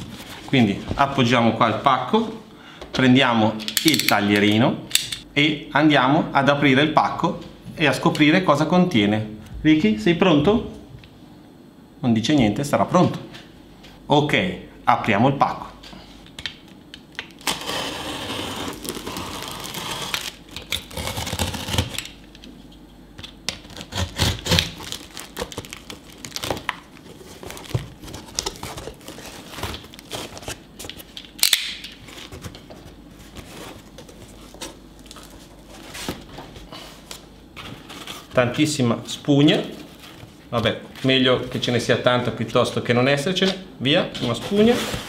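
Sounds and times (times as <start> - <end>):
tape tearing: 17.3 - 22.2, 23.6 - 32.5
knife slitting packing tape: 17.4 - 22.2, 23.6 - 26.7
plastic crinkling: 24.4 - 31.2.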